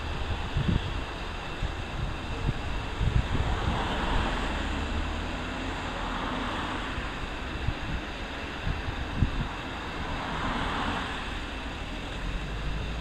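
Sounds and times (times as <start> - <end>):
wind buffeting microphone: 0.0 - 4.7, 6.9 - 10.2
turboprop aircraft droning overhead: 0.0 - 13.0.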